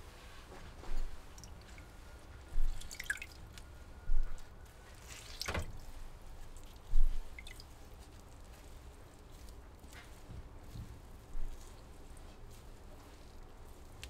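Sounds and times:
water dripping into a basin: 0:01.2 - 0:05.9, 0:06.6 - 0:08.3
water splash: 0:05.0 - 0:05.9.

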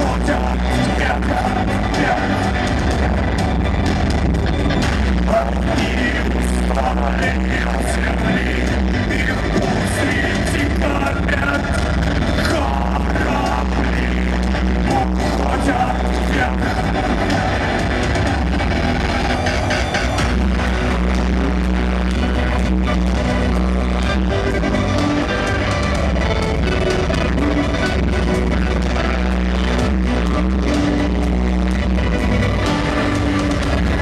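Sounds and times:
man singing: 0:00.0 - 0:02.6, 0:05.1 - 0:17.5
heavy bass line: 0:00.0 - 0:34.0
live electronic rock band: 0:00.0 - 0:34.0.

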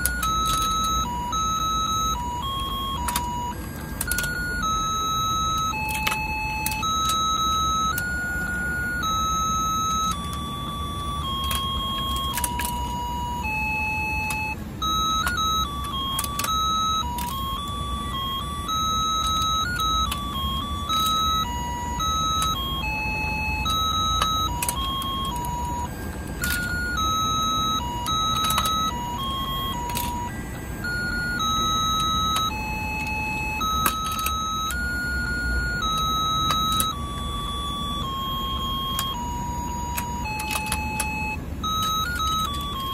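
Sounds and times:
electronic beeping tune: 0:00.0 - 0:42.9
toy motor humming: 0:00.0 - 0:42.9
plastic clicks: 0:11.2 - 0:13.6, 0:23.7 - 0:34.8, 0:38.0 - 0:42.9.

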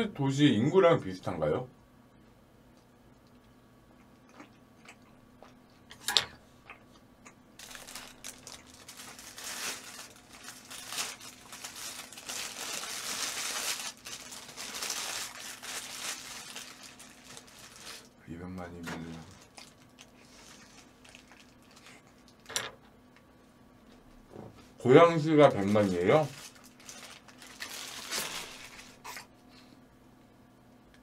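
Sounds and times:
crinkling and crunching: 0:07.6 - 0:22.6, 0:25.2 - 0:29.3.

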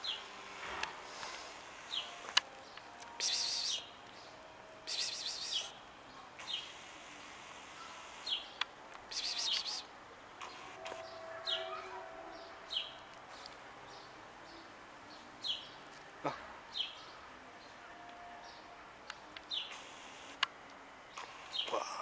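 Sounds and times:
outdoor background noise: 0:00.0 - 0:22.0
small birds chirping: 0:01.2 - 0:16.0, 0:18.4 - 0:20.5, 0:21.1 - 0:22.0.

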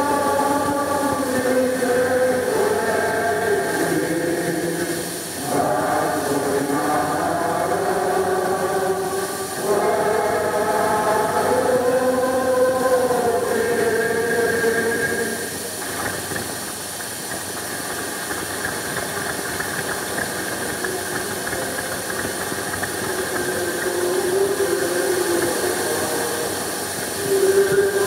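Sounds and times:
crowd applauding and cheering: 0:15.8 - 0:28.0.

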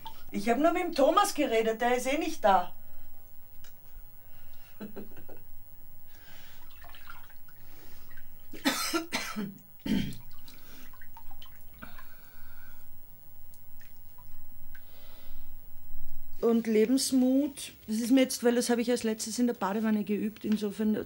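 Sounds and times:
bath water sloshing: 0:00.0 - 0:16.4.

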